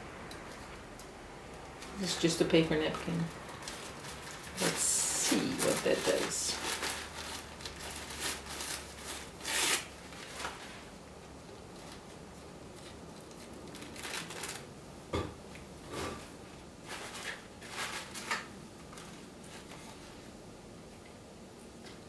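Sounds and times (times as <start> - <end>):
paper napkin rustling: 1.9 - 11.0, 11.6 - 14.7, 16.2 - 20.4.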